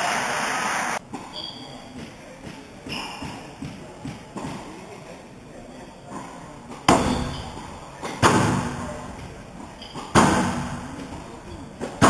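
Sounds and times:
squash ball impacts ringing: 1.2s - 4.9s, 6.7s - 12.0s.

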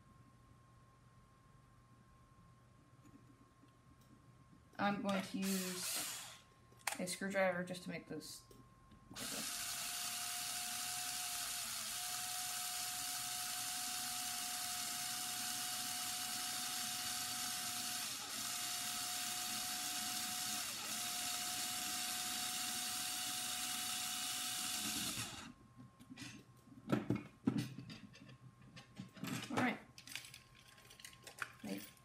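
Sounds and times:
cordless drill motor running: 5.3s - 6.5s, 9.2s - 25.6s.

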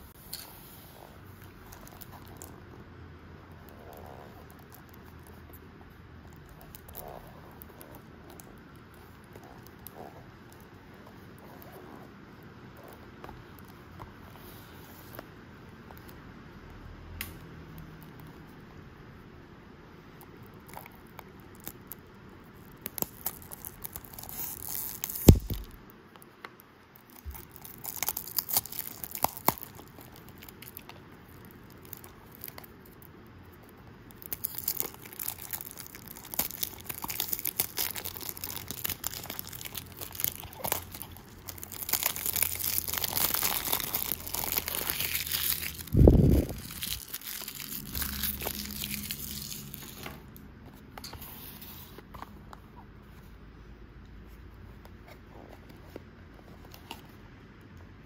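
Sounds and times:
plastic wrap crackling: 20.2s - 25.9s, 27.0s - 50.4s
blade slitting plastic wrap: 22.8s - 25.8s, 34.2s - 50.0s.

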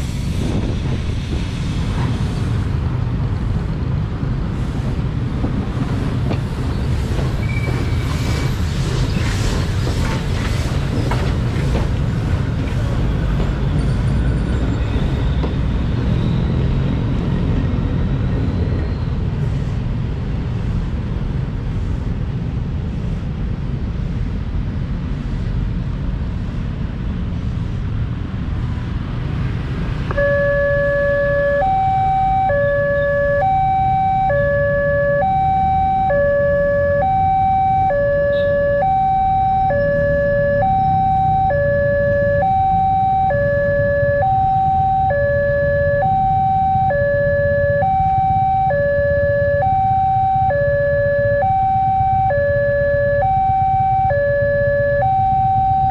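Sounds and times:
road traffic rumble: 0.0s - 55.9s
level crossing alarm two-tone: 30.1s - 55.9s.

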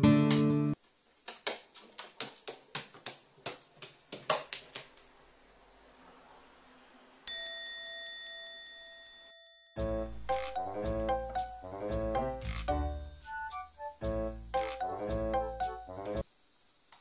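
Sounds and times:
bell-like ding: 7.3s - 9.8s.

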